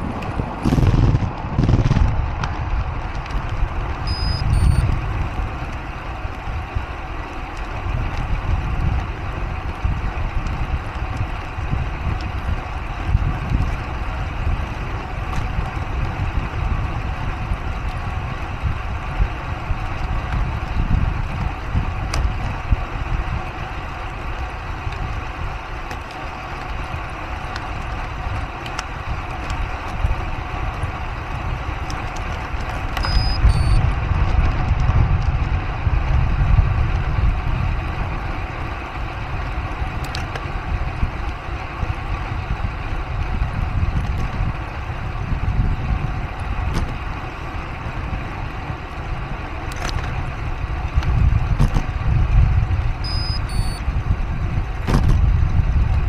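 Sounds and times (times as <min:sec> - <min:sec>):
wind and road noise: 0:00.0 - 0:56.0
two-note electronic beep: 0:04.1 - 0:04.8, 0:33.0 - 0:33.8, 0:53.0 - 0:53.8.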